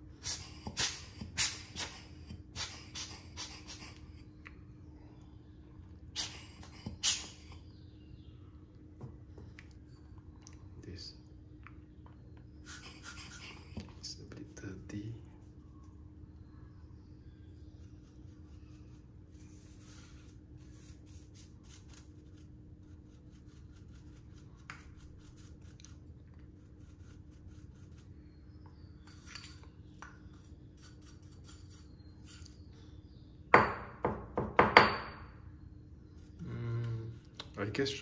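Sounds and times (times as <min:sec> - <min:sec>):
small brush scratching: 0:12.6 - 0:32.8, 0:36.1 - 0:38.0.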